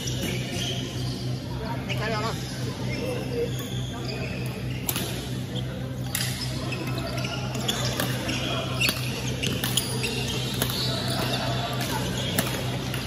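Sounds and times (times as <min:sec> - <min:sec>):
rackets striking shuttlecock: 0:04.8 - 0:05.3, 0:07.6 - 0:13.0
shoes squeaking on floor: 0:05.5 - 0:12.4.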